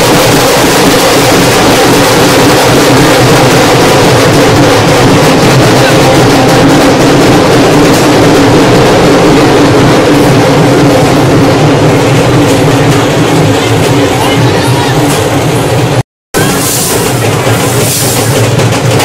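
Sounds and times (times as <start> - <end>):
hubbub of a dense crowd: 9.7 - 19.0.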